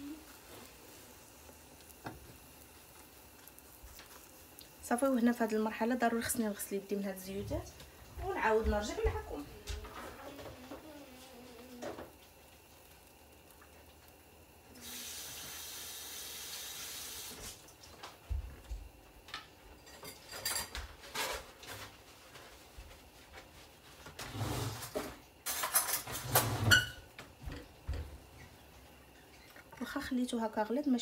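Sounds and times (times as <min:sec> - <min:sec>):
kitchen tap running: 0:12.8 - 0:18.4.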